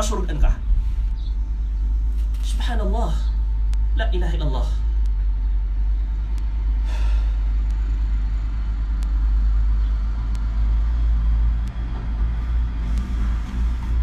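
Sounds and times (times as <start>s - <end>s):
low rumble: 0.0s - 14.0s
faint sharp ticks: 8.9s - 9.3s, 10.2s - 10.5s, 11.6s - 11.8s.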